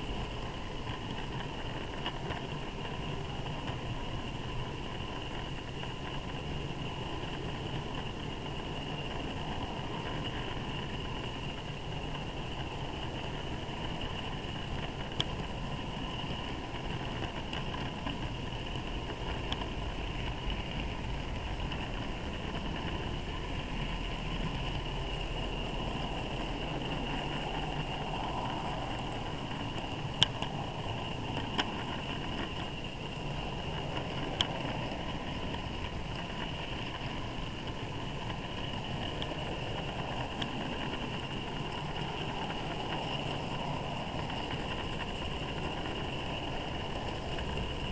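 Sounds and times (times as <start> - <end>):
model train rolling: 0.0 - 47.9
wheels clicking over rail joints: 0.0 - 47.9.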